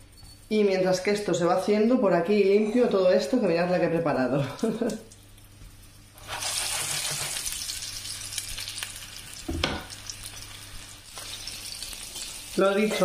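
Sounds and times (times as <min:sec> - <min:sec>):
meatballs sizzling in hot oil: 0:04.6 - 0:13.0.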